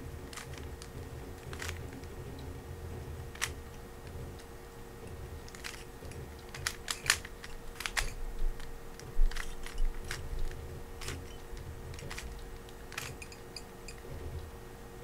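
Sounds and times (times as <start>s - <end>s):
rubik's cube clicking: 0.3s - 2.2s, 3.3s - 3.6s, 5.4s - 14.0s.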